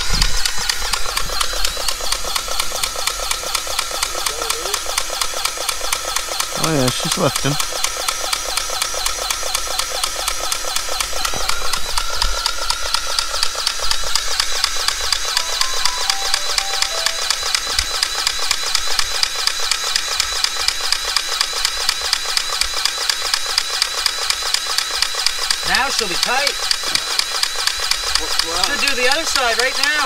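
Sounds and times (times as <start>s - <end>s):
grease gun pump ticking: 0.2s - 15.2s.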